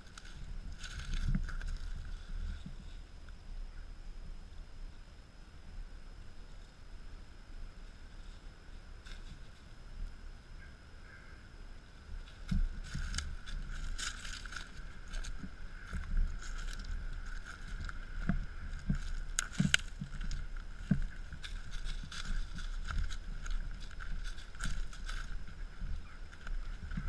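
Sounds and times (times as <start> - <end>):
paws stepping through dry leaves: 0.0 - 3.0, 12.2 - 27.0
faint high hum: 0.0 - 27.0
low rumble on microphone: 0.0 - 27.0.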